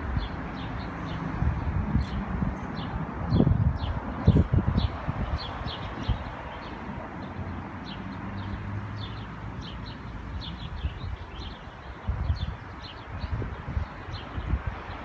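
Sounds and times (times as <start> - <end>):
small birds chirping: 0.1 - 15.0
low rumbling on microphone: 1.2 - 6.4.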